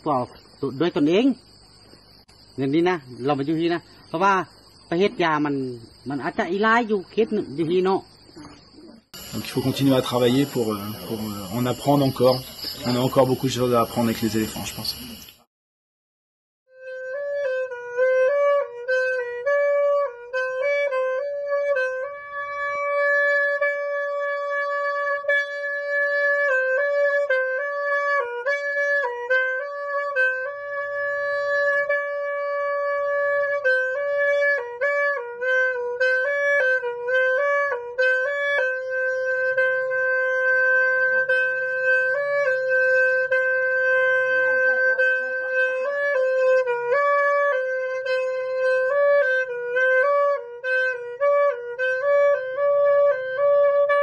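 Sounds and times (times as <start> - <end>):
solo wind instrument melody: 16.7 - 54.0.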